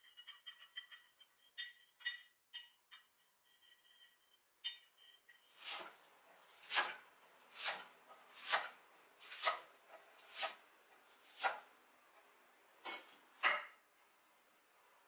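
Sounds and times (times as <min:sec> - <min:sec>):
knife cutting on wooden board: 0:05.6 - 0:06.0, 0:06.6 - 0:10.6, 0:11.2 - 0:11.7.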